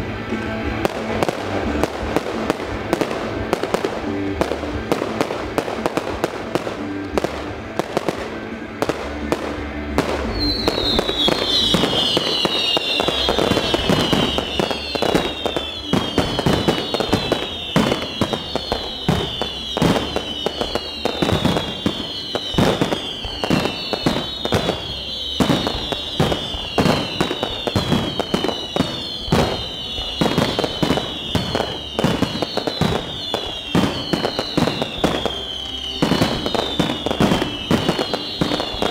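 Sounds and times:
fireworks bangs: 0:00.0 - 0:38.9
falling firework whistles: 0:10.0 - 0:38.9.

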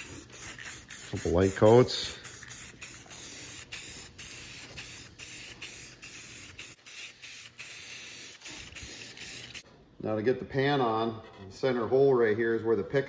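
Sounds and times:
aerosol spray hissing: 0:00.0 - 0:09.6.

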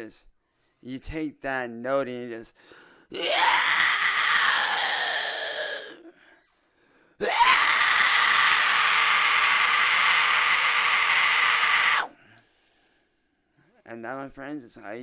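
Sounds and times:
man's distorted vocal fry scream: 0:03.1 - 0:06.1, 0:07.2 - 0:12.2.

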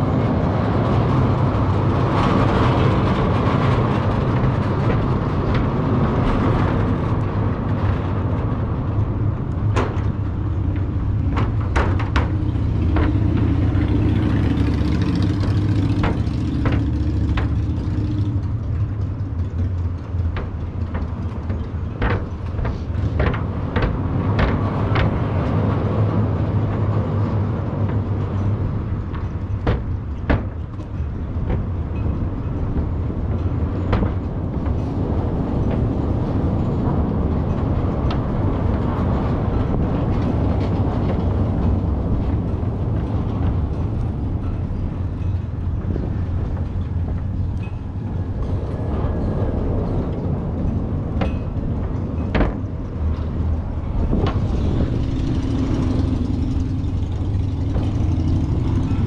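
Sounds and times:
cars crossing steel grid bridge: 0:00.0 - 0:59.0
sharp clicks and clunks: 0:00.0 - 0:59.0.

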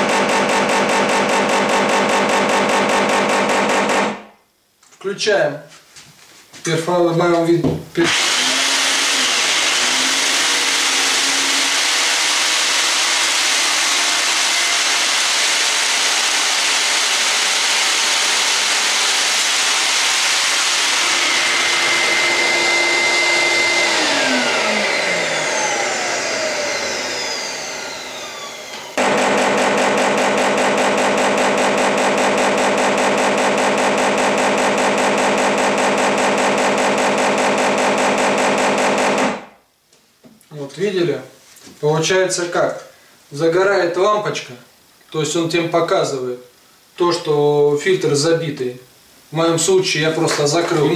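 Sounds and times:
motor winding down whine: 0:00.0 - 0:04.1, 0:08.0 - 0:39.4
shop vacuum running: 0:00.0 - 0:04.1, 0:08.0 - 0:39.3.

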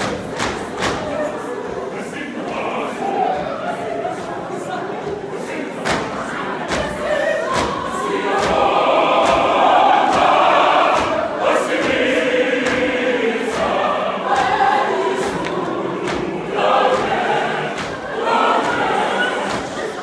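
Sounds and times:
choir singing a hymn: 0:00.0 - 0:20.0
soft knocks keeping a beat: 0:05.8 - 0:20.0.

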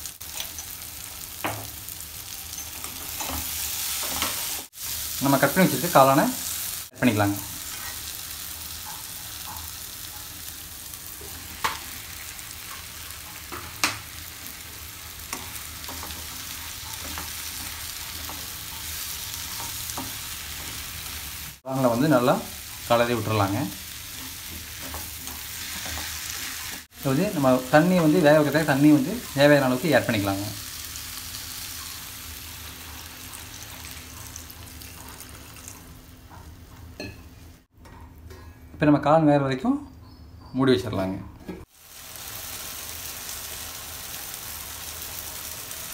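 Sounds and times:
masala sizzling in a pan: 0:00.0 - 0:37.7, 0:41.6 - 0:45.9
water hissing in hot pan: 0:41.7 - 0:45.9.

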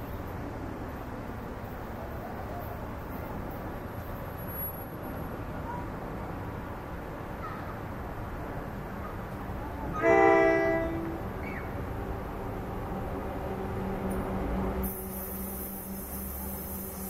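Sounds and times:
locomotive horn blast: 0:09.9 - 0:11.4.

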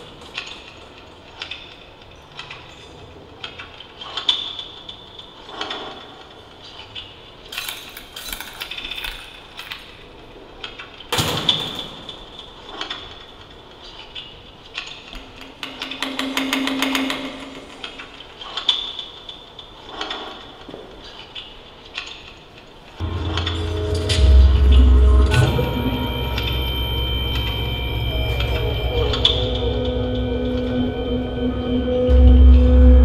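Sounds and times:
heavy hit: 0:23.0 - 0:30.2
high ringing tone: 0:23.0 - 0:33.0
low hum: 0:23.0 - 0:33.0.

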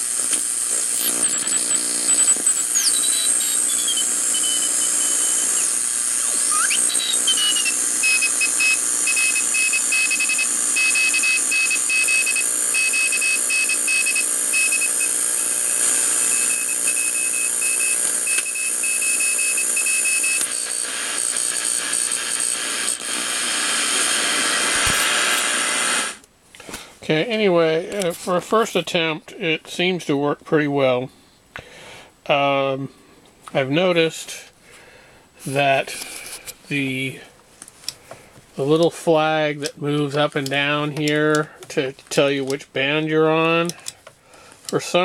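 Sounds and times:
radio static and hiss: 0:00.0 - 0:12.9, 0:15.0 - 0:16.6, 0:23.1 - 0:26.1
high beeping tone: 0:01.0 - 0:14.8
heterodyne whistles: 0:02.4 - 0:08.2.

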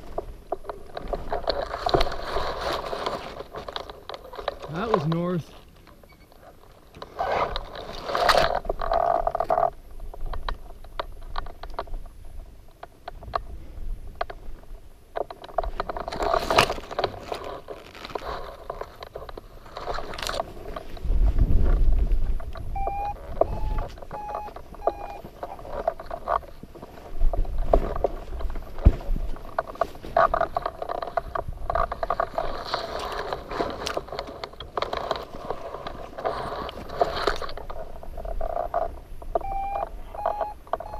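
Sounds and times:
wind buffeting microphone: 0:20.5 - 0:29.6
gear clicking and rattling: 0:22.4 - 0:39.4
electronic beeps: 0:22.7 - 0:25.2, 0:39.4 - 0:40.9.

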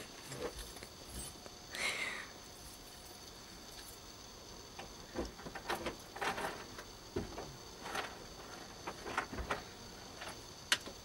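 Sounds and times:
high insect buzz: 0:00.0 - 0:11.0
rustling scraping and knocks: 0:05.2 - 0:10.4.

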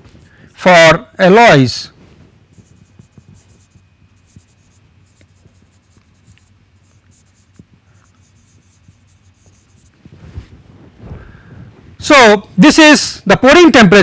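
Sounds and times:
low room hum: 0:00.0 - 0:14.0
marker scratching on whiteboard: 0:02.5 - 0:10.1.

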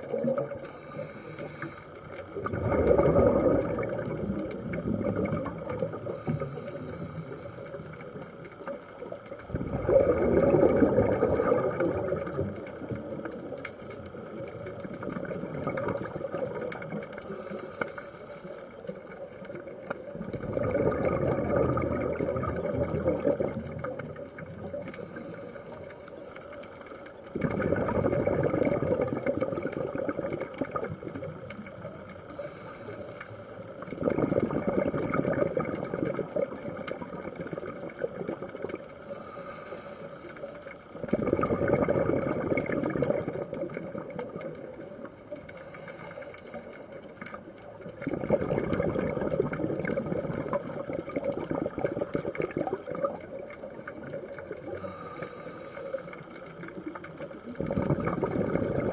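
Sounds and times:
regulator hiss on inhale: 0:00.4 - 0:02.5, 0:05.9 - 0:09.4, 0:15.2 - 0:20.1, 0:24.6 - 0:27.4, 0:30.7 - 0:34.0, 0:38.5 - 0:41.1, 0:45.3 - 0:47.6, 0:53.6 - 0:57.7
rough bubbling exhale underwater: 0:02.4 - 0:08.0, 0:09.5 - 0:13.5, 0:14.3 - 0:17.5, 0:20.1 - 0:25.2, 0:27.3 - 0:31.9, 0:33.8 - 0:39.5, 0:41.0 - 0:45.0, 0:47.9 - 0:58.9.

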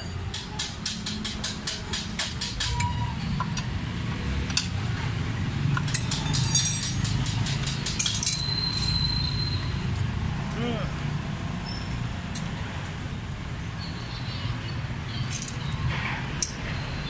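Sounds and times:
street traffic rumble: 0:00.0 - 0:17.0
wrench clicking: 0:05.7 - 0:08.9, 0:15.3 - 0:15.6
thin high squeak: 0:08.1 - 0:09.8.

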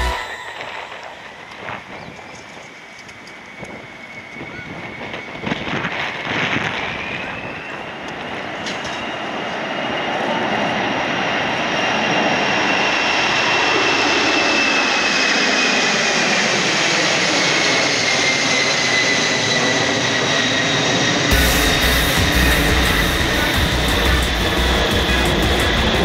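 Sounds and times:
jet engine whine: 0:00.0 - 0:26.0
jet engines roaring: 0:00.0 - 0:26.0.

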